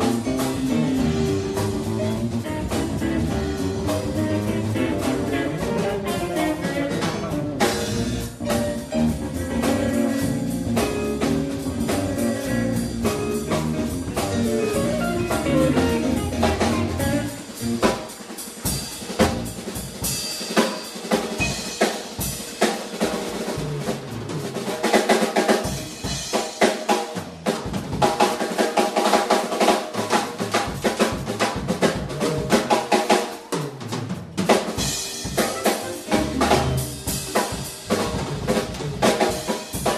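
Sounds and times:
electric guitars: 0:00.0 - 0:19.6, 0:34.6 - 0:39.9
bass guitar: 0:00.0 - 0:20.2, 0:23.0 - 0:24.9, 0:30.0 - 0:33.0, 0:33.7 - 0:39.9
drum kit: 0:00.0 - 0:39.9.

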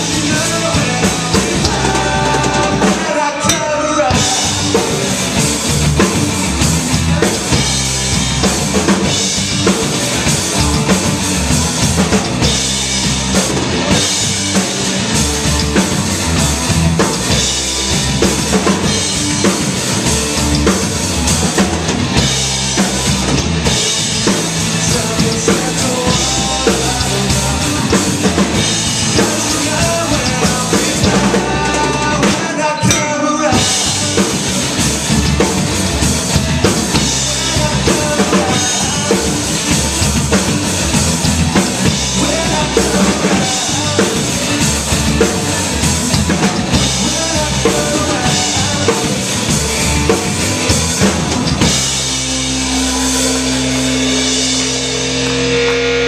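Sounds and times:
drum kit: 0:00.0 - 0:56.0
electric guitars: 0:00.0 - 0:56.0
live rock band playing: 0:00.0 - 0:56.0.

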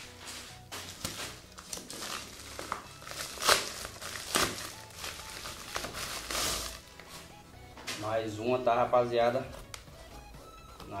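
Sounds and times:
plastic bag crinkling: 0:01.5 - 0:07.1.

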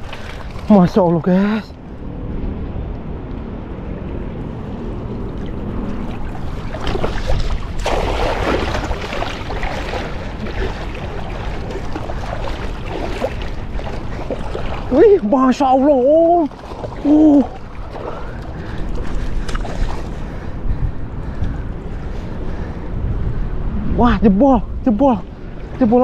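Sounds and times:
water sloshing and splashing: 0:00.0 - 0:02.0, 0:03.8 - 0:22.8
wind rumbling on microphone: 0:00.0 - 0:26.0.

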